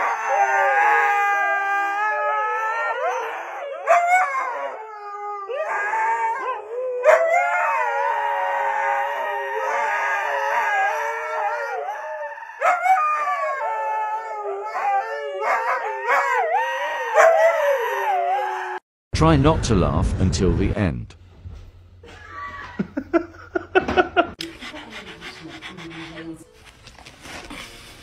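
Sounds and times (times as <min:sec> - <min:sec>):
huskies howling: 0:00.0 - 0:18.8.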